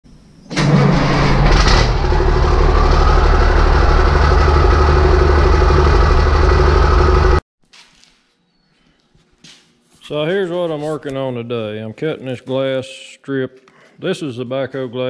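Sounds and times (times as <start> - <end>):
heavy engine running: 0.5 - 7.4.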